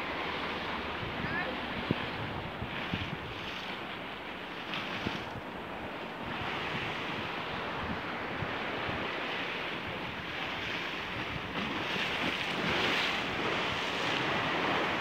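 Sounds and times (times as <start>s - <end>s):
surf washing against rocks: 0.0s - 15.0s
wind noise on microphone: 0.0s - 15.0s.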